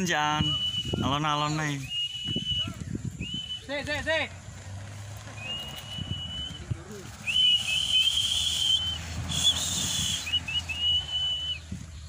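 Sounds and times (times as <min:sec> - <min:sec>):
whistled chirps: 0:00.1 - 0:04.0, 0:05.3 - 0:12.0
person whistling high note: 0:00.4 - 0:03.7, 0:05.4 - 0:11.7
rushing hiss: 0:05.3 - 0:11.2.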